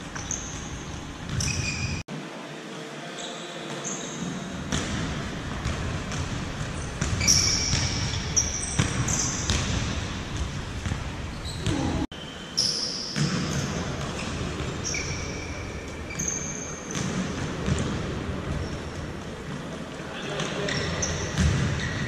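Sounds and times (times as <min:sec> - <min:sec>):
shoes squeaking on floor: 0:00.1 - 0:02.0, 0:03.2 - 0:04.4, 0:06.7 - 0:09.5, 0:11.3 - 0:17.1, 0:20.2 - 0:22.0.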